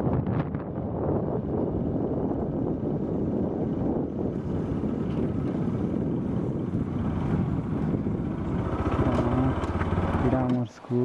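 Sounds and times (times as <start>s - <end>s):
wind buffeting microphone: 0.0s - 11.0s
motorbike engine running: 1.4s - 11.0s.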